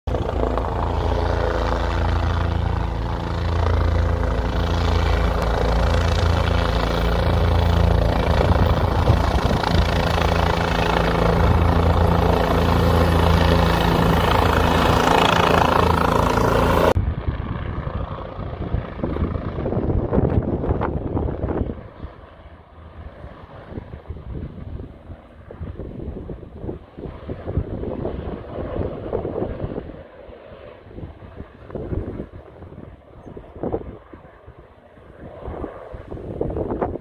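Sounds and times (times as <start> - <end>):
helicopter rotor beat: 0.1 - 37.0.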